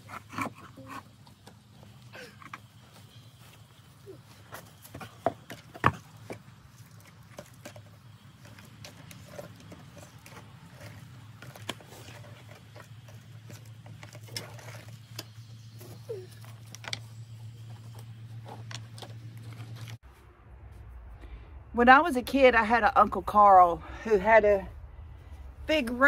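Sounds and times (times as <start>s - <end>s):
steady low hum: 0.0s - 26.0s
stones knocking together: 4.8s - 15.4s.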